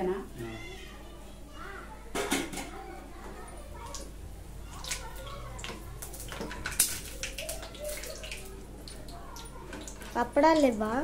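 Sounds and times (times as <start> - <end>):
hot oil sizzling and crackling: 3.8 - 11.0.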